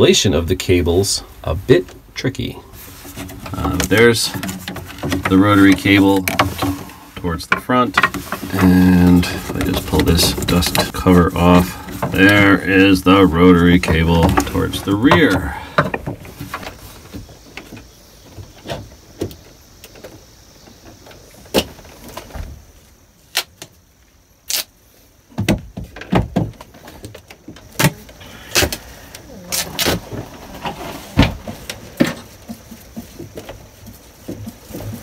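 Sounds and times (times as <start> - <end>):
clicks knocks and rattles of handling: 3.1 - 11.0.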